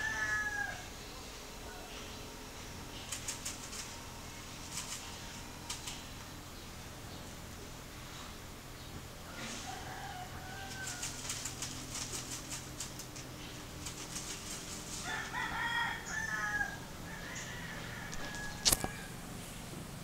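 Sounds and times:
bird scratching in seed: 0:02.9 - 0:06.3, 0:09.4 - 0:16.3, 0:17.6 - 0:19.2.

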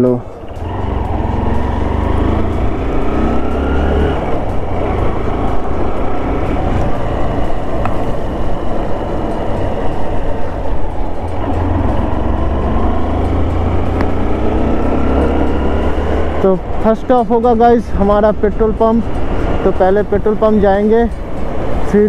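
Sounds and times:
motor scooter engine: 0:00.4 - 0:09.2.

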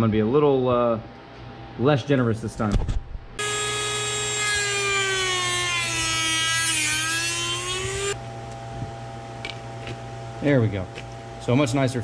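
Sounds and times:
rotary tool whine cutting plastic: 0:03.4 - 0:08.2.

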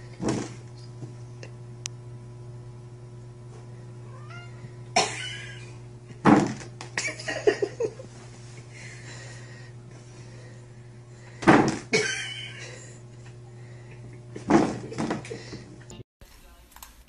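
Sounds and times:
loud thumps in plastic box: 0:06.2 - 0:06.7, 0:11.4 - 0:11.9.

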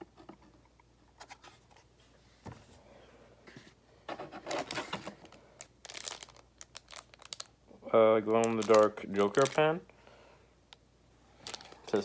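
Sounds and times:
packaging rustling and crinkling: 0:04.4 - 0:07.6, 0:08.2 - 0:09.8, 0:11.4 - 0:12.0.

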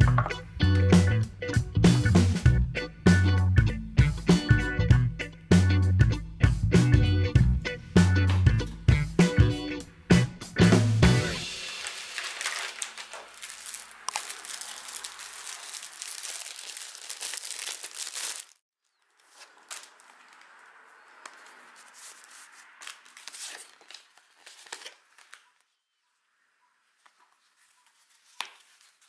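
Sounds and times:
plastic bag crinkling: 0:11.4 - 0:20.8, 0:21.4 - 0:25.6
cloth pouch rustling: 0:11.5 - 0:18.6, 0:19.2 - 0:20.6.

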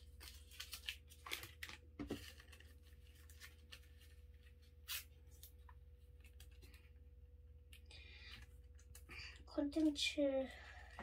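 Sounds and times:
plastic packet rustling: 0:00.0 - 0:07.0
faint steady hum: 0:00.0 - 0:11.0.

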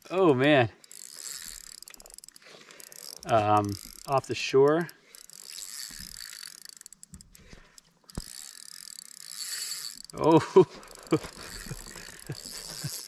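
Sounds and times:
fishing reel whirring and clicking: 0:00.6 - 0:13.0
person exclaiming: 0:10.2 - 0:10.7.

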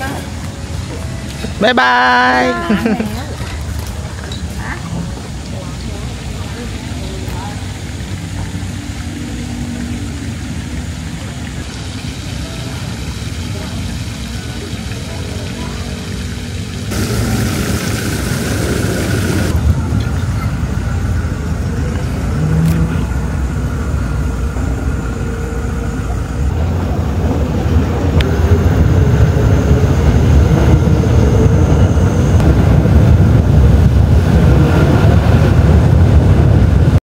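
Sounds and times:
car engine and road rumble: 0:02.9 - 0:37.0.

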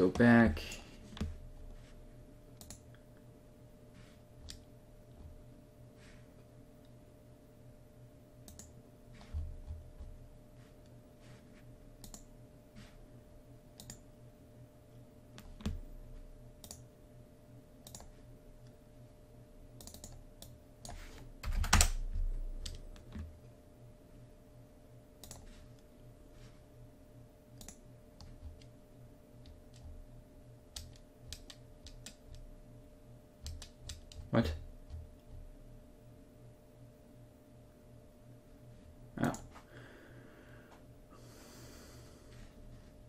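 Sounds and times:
faint steady hum: 0:00.0 - 0:43.0
computer keyboard typing: 0:02.6 - 0:02.9, 0:17.8 - 0:18.1, 0:19.8 - 0:22.0, 0:25.2 - 0:25.5, 0:30.7 - 0:32.5, 0:33.4 - 0:35.3.

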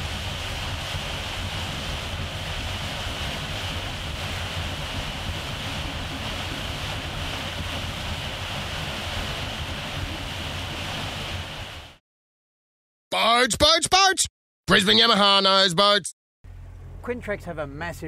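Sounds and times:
boat engine rumble: 0:00.0 - 0:12.0, 0:16.5 - 0:18.0
wind and water rushing: 0:00.0 - 0:12.0.

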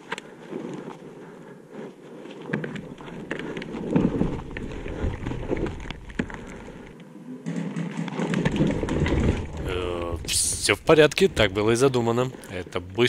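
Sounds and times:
camera falling and tumbling: 0:02.4 - 0:11.6.

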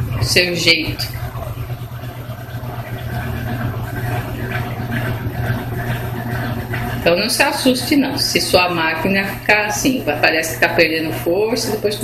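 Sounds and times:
washing machine motor hum: 0:00.0 - 0:12.0
water churning in tub: 0:00.0 - 0:12.0.

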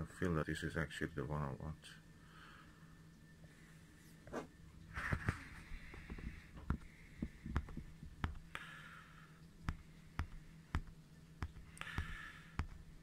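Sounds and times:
faint low hum: 0:00.0 - 0:13.0
steady sharp ticking clicks: 0:06.6 - 0:08.7, 0:09.4 - 0:13.0.

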